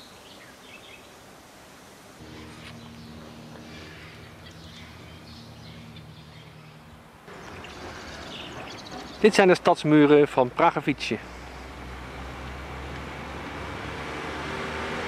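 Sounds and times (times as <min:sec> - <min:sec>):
steady hiss: 0:00.0 - 0:08.7
steady low hum: 0:02.2 - 0:09.0.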